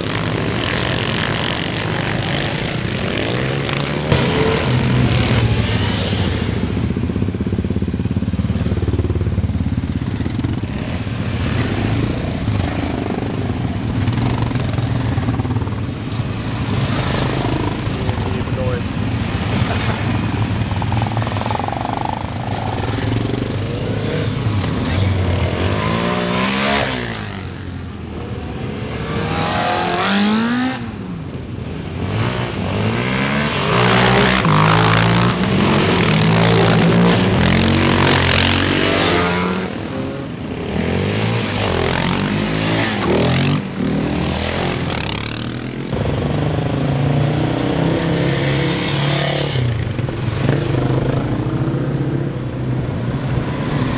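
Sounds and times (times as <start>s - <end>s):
quad engines revving past: 10.1s - 31.0s, 31.9s - 53.9s.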